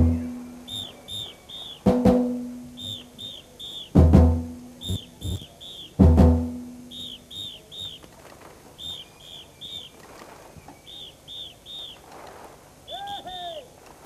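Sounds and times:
high whistled chirps: 0.0 - 1.9, 2.7 - 4.0, 4.8 - 6.0, 6.9 - 8.0, 8.8 - 10.0, 10.6 - 12.0.

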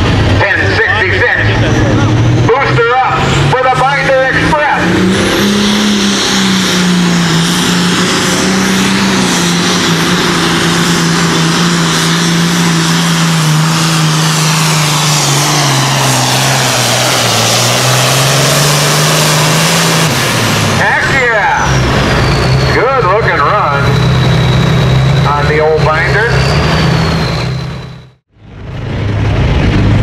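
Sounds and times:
diesel tractor engine at full power: 0.0 - 30.0.

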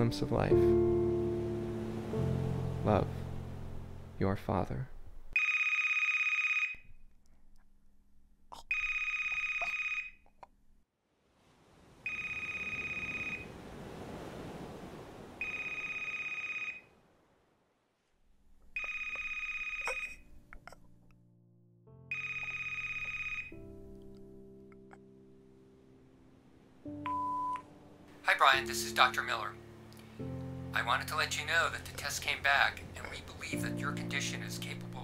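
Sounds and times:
telephone ringing: 5.4 - 6.8, 8.7 - 10.2, 12.0 - 13.5, 15.4 - 16.9, 18.7 - 20.3, 22.1 - 23.7.

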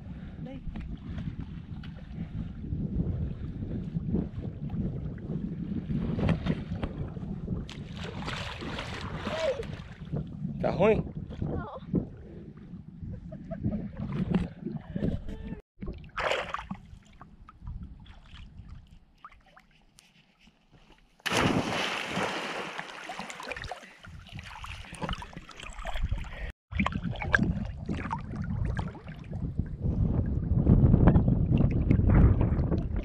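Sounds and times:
wind rumble on microphone: 0.0 - 16.0, 17.2 - 19.0, 24.1 - 33.0
water sloshing and lapping: 0.6 - 2.6, 3.2 - 10.4, 11.2 - 30.3
rush of splashing water: 16.1 - 17.1, 21.3 - 29.3.

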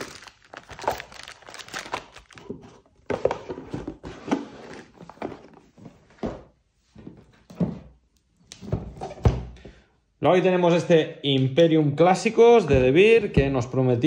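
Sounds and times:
plastic wrap crinkling: 0.0 - 3.1.

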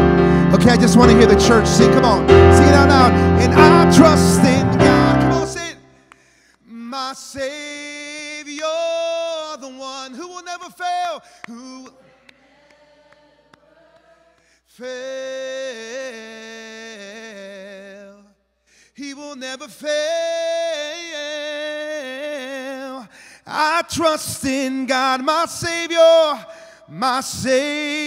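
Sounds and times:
man singing unaccompanied: 0.0 - 5.8.

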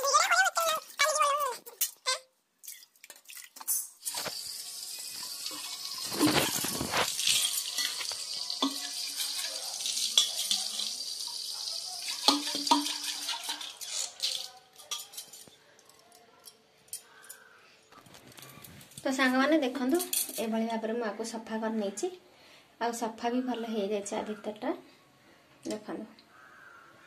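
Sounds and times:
tap water splashing: 5.4 - 9.5, 12.1 - 13.7.

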